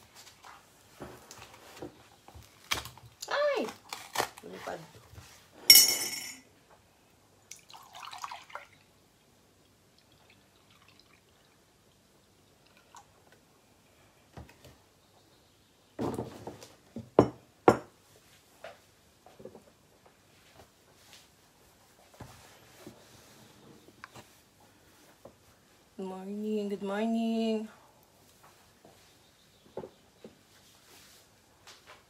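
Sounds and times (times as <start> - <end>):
milk pouring into a jug: 7.5 - 9.0, 9.7 - 13.2.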